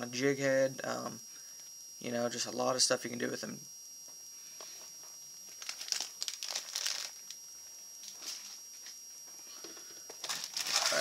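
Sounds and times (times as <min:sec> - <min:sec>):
plastic packaging crinkling: 0:05.5 - 0:07.4, 0:10.2 - 0:11.0.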